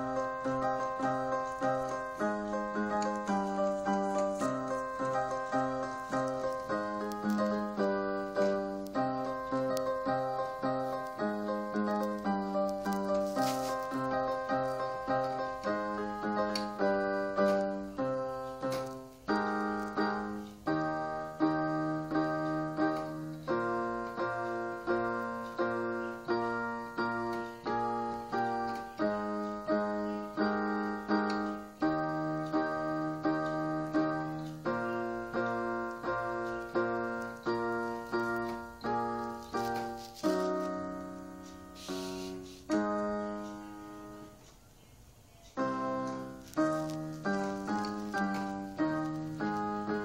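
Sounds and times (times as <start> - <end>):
electronic keyboard piano chords: 0.0 - 50.0.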